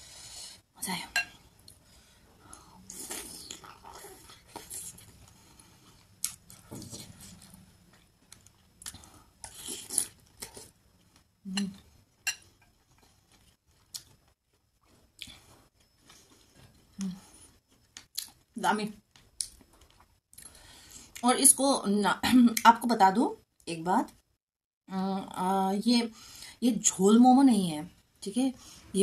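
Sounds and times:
person chewing: 2.6 - 11.8, 12.8 - 18.4.

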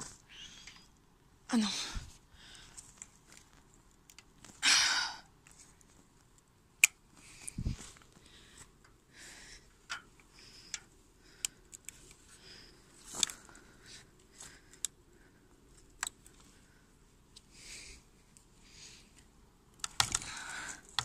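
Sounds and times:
small handling clicks: 2.7 - 4.6, 9.9 - 12.3, 19.1 - 21.0.

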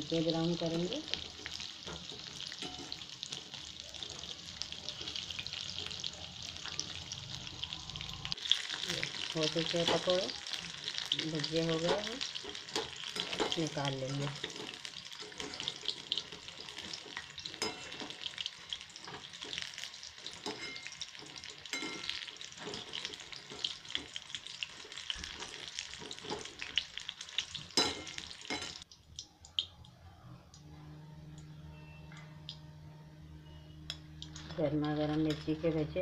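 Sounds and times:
food sizzling in hot oil: 0.0 - 28.9
wire skimmer clinking on pan: 1.4 - 3.4, 11.3 - 18.4, 19.0 - 24.2
low steady hum: 29.2 - 36.0.

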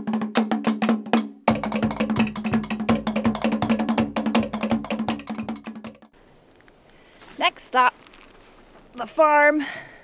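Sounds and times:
fast drumming on slit and skin drums: 0.0 - 6.2.

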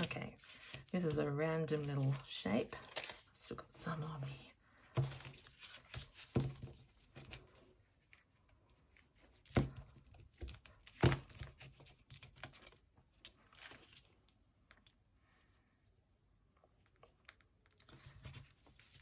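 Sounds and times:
paper rustling and crinkling: 0.0 - 3.6, 4.9 - 14.4, 17.8 - 19.0.

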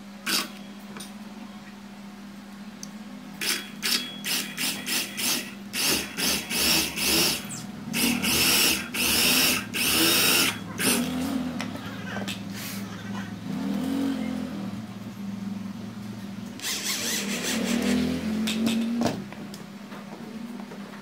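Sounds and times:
electric drill boring into wood: 3.4 - 11.0, 16.6 - 18.0.

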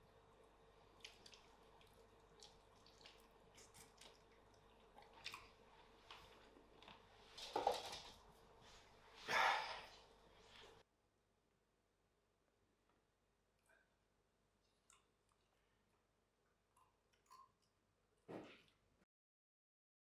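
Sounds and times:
person chewing: 0.9 - 7.0.

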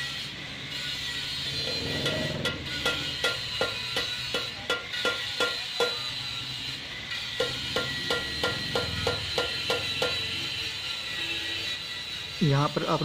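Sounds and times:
hammer striking metal wheel: 1.5 - 6.2, 7.3 - 10.4.

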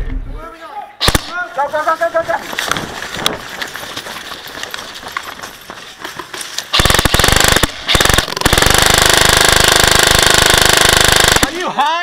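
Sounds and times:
airsoft gun rapid fire: 1.0 - 1.5, 6.7 - 11.6
clicks and gear rustle: 1.8 - 6.9.

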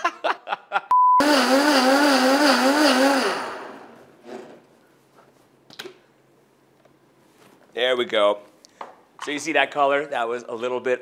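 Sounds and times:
blender crushing ice: 1.2 - 4.0.

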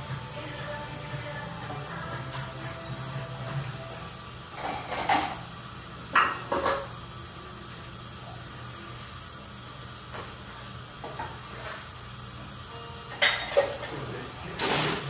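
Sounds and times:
steady hiss: 0.0 - 15.0
dishes clattering: 4.6 - 5.4, 6.1 - 6.9, 13.1 - 15.0.

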